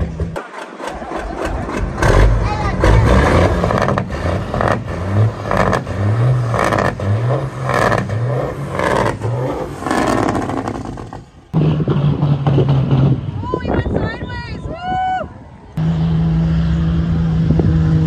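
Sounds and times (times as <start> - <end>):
diesel truck engine revving: 0.0 - 13.5, 15.8 - 18.0
rough clattering exhaust: 0.0 - 13.6.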